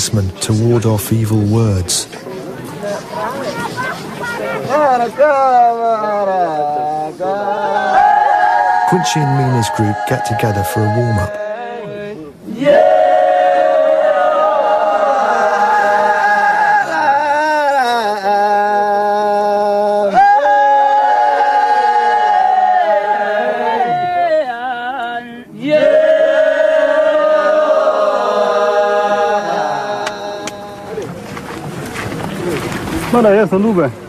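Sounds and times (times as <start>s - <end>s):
men chanting together: 4.7s - 31.1s.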